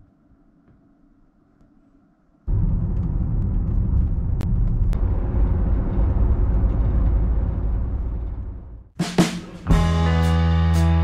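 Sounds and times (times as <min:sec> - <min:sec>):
car road and engine rumble: 0:02.5 - 0:09.0.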